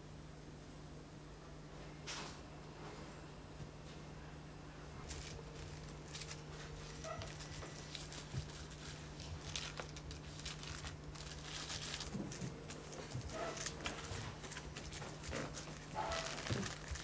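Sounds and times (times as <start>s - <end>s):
steady low hum: 0.0s - 17.0s
plastic bags rustling: 5.0s - 17.0s.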